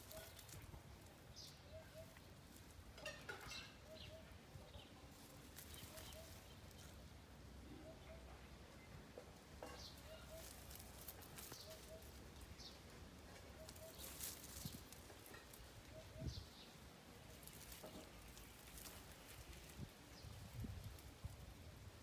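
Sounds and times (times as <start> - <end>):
leaves rustling: 0.0 - 8.3, 9.3 - 22.0
twigs snapping: 9.9 - 12.2, 13.6 - 15.8, 17.3 - 19.8.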